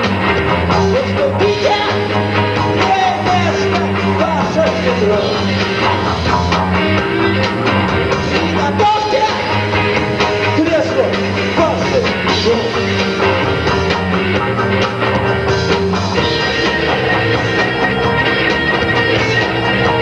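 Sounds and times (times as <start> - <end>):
rock band playing: 0.0 - 20.0.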